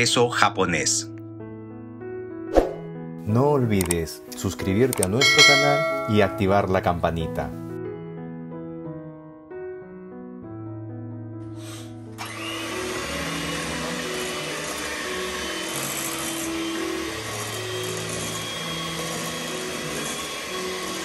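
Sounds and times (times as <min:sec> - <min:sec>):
piano music: 0:00.0 - 0:21.0
electric kitchen mixer running: 0:12.2 - 0:21.0.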